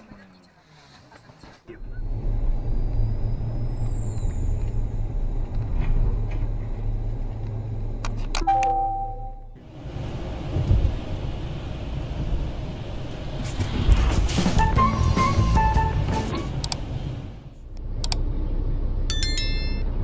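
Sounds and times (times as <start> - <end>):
car engine and road rumble: 0.0 - 20.0
hissy road noise: 9.6 - 14.6.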